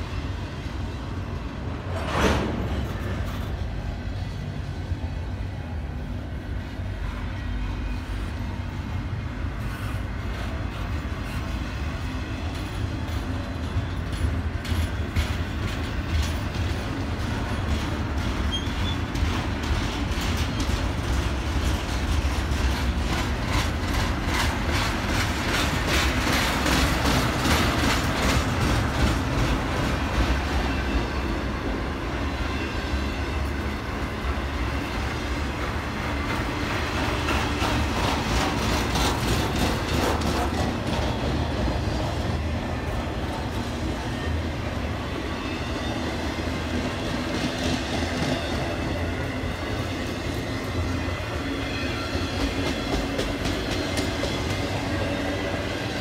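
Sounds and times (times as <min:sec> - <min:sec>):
train wheels rumbling on rail: 0:00.0 - 0:56.0
wheels clicking over rail joints: 0:12.0 - 0:30.8, 0:35.5 - 0:42.2, 0:52.2 - 0:55.1.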